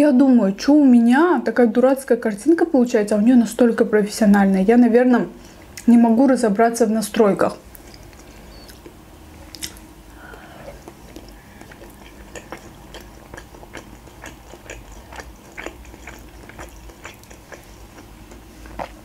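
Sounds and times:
faint low hum: 0:00.0 - 0:19.0
wet chewing clicks and smacks: 0:07.7 - 0:09.8, 0:10.8 - 0:19.0.

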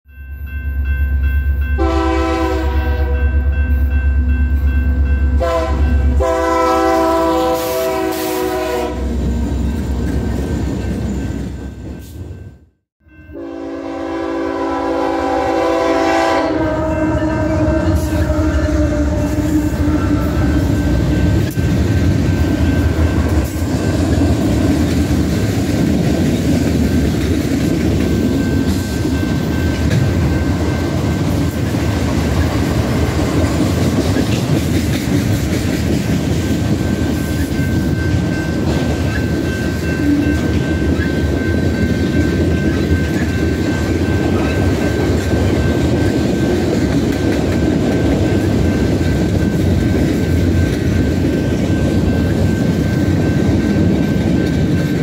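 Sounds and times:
locomotive air horn blasts: 0:01.8 - 0:03.4, 0:05.4 - 0:09.2, 0:13.3 - 0:21.1
train wheel noise: 0:13.9 - 0:55.0
rail-joint clatter: 0:21.2 - 0:55.0.

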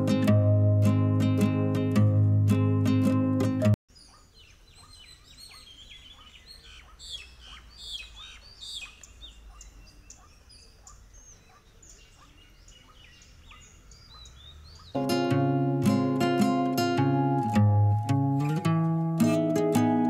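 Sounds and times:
acoustic guitar music: 0:00.0 - 0:03.8, 0:14.9 - 0:20.0
birds chirping: 0:03.9 - 0:18.6.

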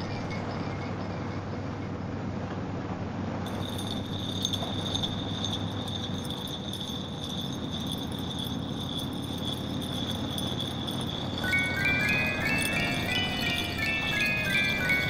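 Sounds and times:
high-pitched jingling ring: 0:03.5 - 0:15.0.

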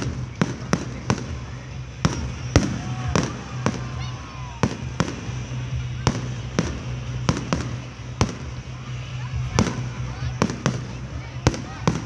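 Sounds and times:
fireworks bursting with sharp bangs: 0:00.0 - 0:12.0.

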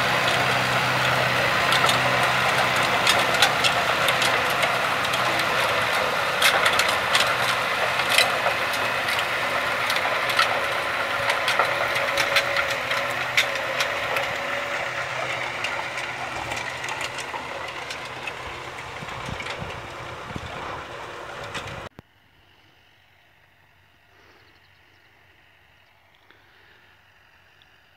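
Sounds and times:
manure spreader rattling clatter: 0:00.0 - 0:21.9
tractor engine running: 0:00.0 - 0:22.0.

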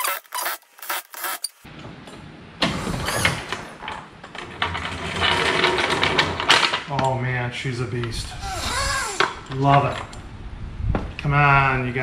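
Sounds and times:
ratchet rattling and whirring: 0:08.4 - 0:09.5.

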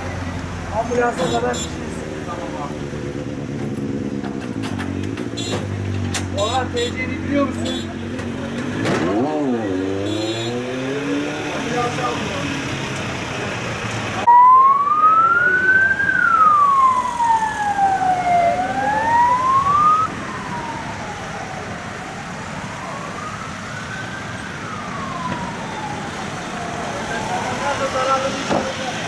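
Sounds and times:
emergency siren wailing: 0:14.2 - 0:28.4.

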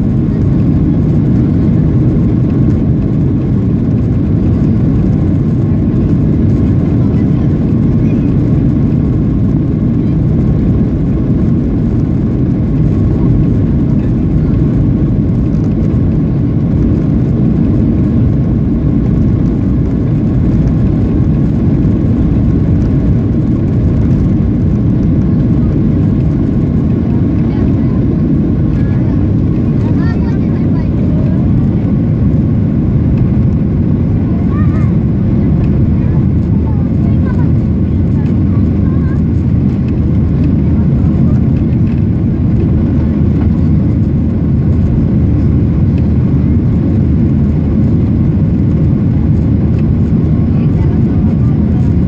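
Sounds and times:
aircraft cabin engine rumble: 0:00.0 - 0:52.0.

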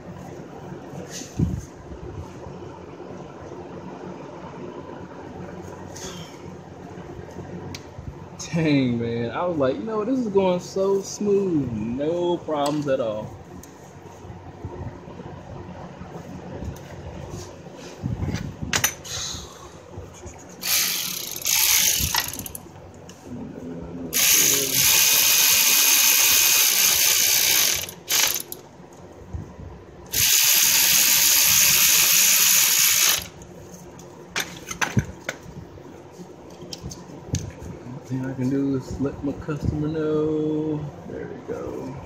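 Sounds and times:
power ratchet running: 0:20.6 - 0:22.7, 0:24.1 - 0:28.6, 0:30.1 - 0:33.4
clicks of tools and metal: 0:34.0 - 0:35.4.

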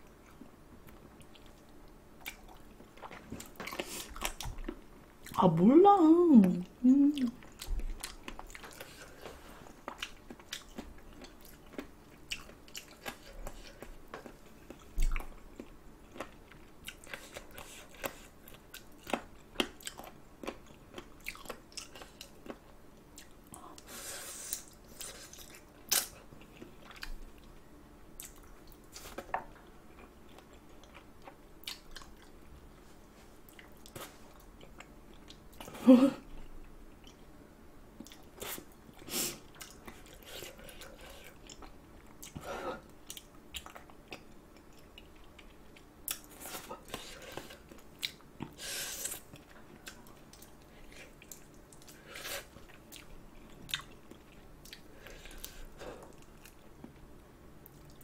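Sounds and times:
close chewing and biting: 0:07.2 - 0:23.4, 0:43.0 - 0:57.0.

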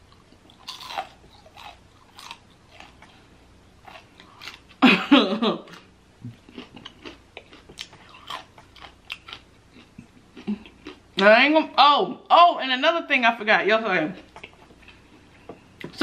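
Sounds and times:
chewing crispy fried chicken: 0:00.1 - 0:04.8, 0:05.7 - 0:11.1.

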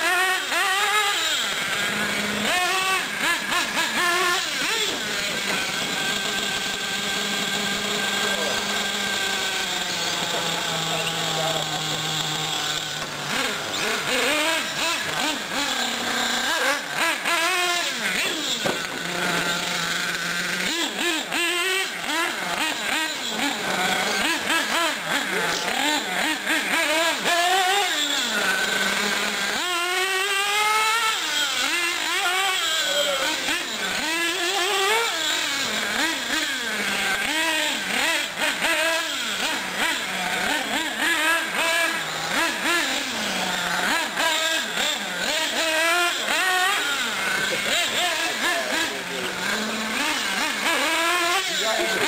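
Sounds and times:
rc car motors revving: 0:00.0 - 0:52.0.

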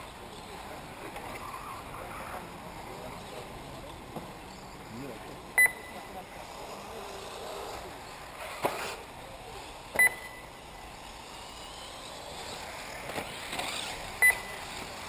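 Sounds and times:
electric model buggies running: 0:00.0 - 0:15.0
short high electronic beeps: 0:05.6 - 0:06.0, 0:10.0 - 0:10.5, 0:14.2 - 0:14.6.

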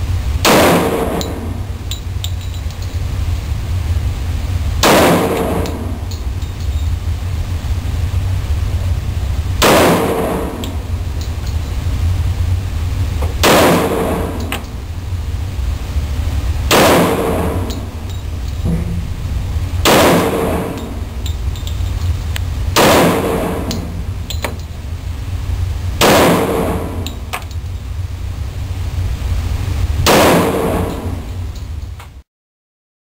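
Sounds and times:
steady low hum: 0:00.0 - 0:32.2
pistol shots echoing indoors: 0:00.4 - 0:01.6, 0:04.8 - 0:06.2, 0:09.6 - 0:10.8, 0:13.4 - 0:14.6, 0:16.7 - 0:19.0, 0:19.8 - 0:21.2, 0:22.8 - 0:24.6, 0:26.0 - 0:27.2, 0:30.1 - 0:31.3.

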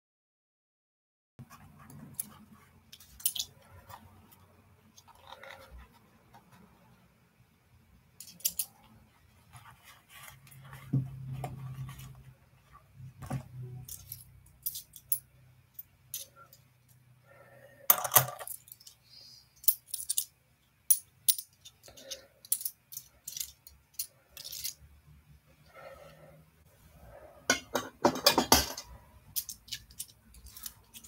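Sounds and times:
coins clinking: 0:03.1 - 0:03.5, 0:08.2 - 0:08.8, 0:13.8 - 0:15.2, 0:19.6 - 0:24.8, 0:28.3 - 0:31.0.

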